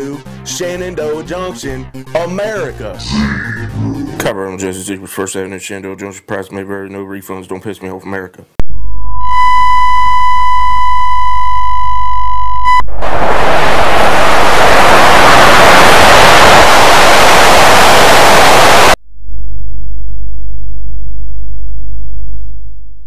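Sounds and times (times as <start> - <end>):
tv static hiss: 12.5 - 19.0.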